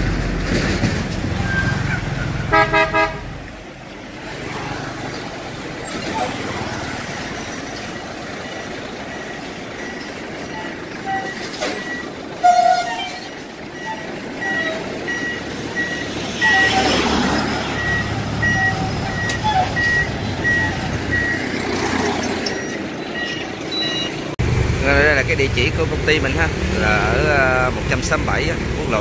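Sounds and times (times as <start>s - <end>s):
trucks driving past: 0.0s - 29.0s.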